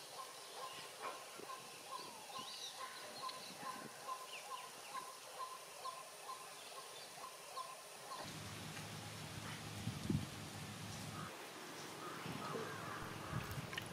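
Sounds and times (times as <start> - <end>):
birds chirping: 0.0 - 8.4
steady high hiss: 0.0 - 13.9.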